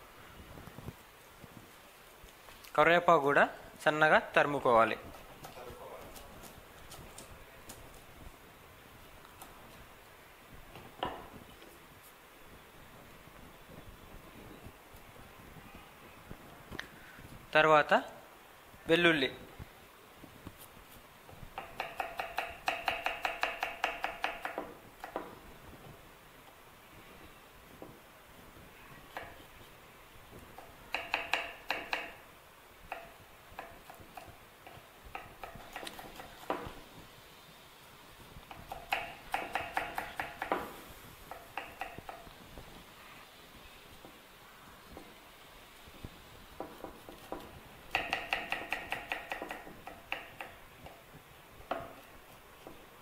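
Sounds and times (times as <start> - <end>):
knife chopping on wooden board: 21.6 - 25.4, 30.6 - 32.2, 32.9 - 36.8, 38.5 - 42.3, 46.6 - 51.0.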